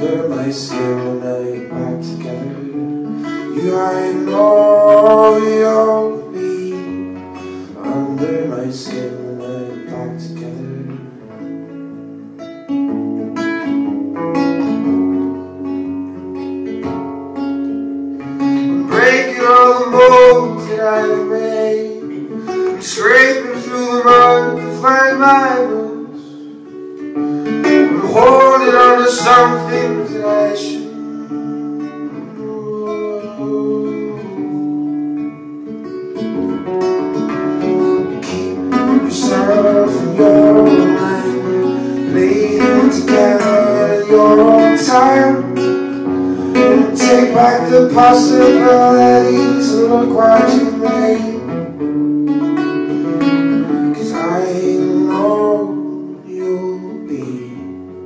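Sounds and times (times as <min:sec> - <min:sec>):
person singing: 0:00.0 - 0:11.2, 0:18.6 - 0:26.7, 0:27.4 - 0:35.0, 0:37.4 - 0:51.8, 0:52.9 - 0:58.0
strummed acoustic guitar: 0:00.0 - 0:58.0.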